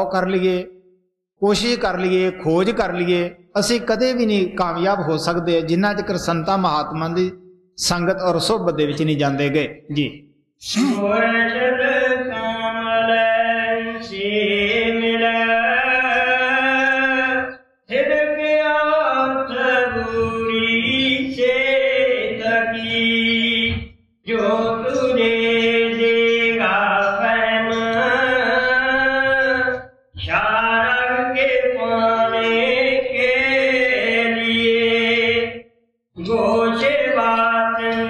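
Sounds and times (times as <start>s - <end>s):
man chanting a hymn: 1.4s - 23.7s, 24.3s - 35.6s, 36.2s - 38.0s.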